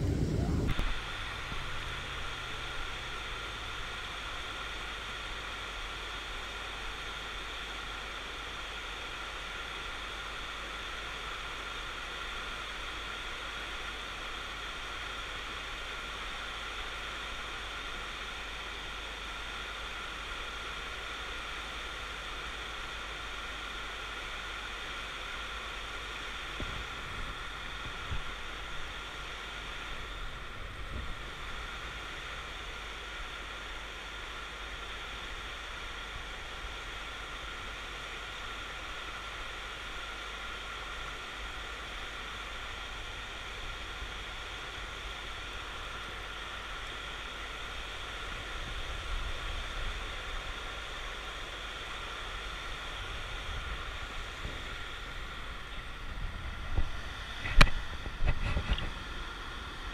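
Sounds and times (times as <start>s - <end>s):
wind rumbling on microphone: 0.0s - 4.2s, 26.5s - 29.0s, 29.8s - 32.0s, 52.6s - 59.9s
river water rushing over dam: 0.0s - 59.9s.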